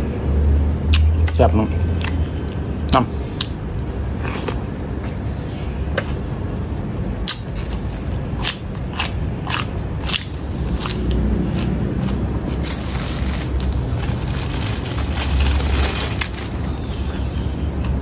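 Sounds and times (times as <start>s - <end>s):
person chewing food: 1.9s - 2.7s, 7.3s - 15.4s
crunching raw cucumber: 7.3s - 16.9s.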